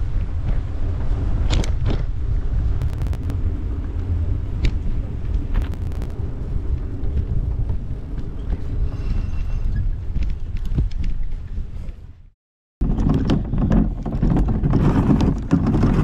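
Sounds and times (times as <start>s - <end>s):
wind buffeting microphone: 0.0s - 16.0s
sharp clicks: 2.8s - 3.4s.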